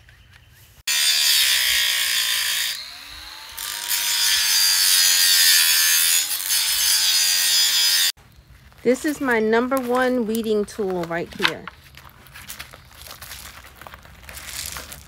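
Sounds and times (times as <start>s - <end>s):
angle grinder cutting steel: 0.9s - 8.2s.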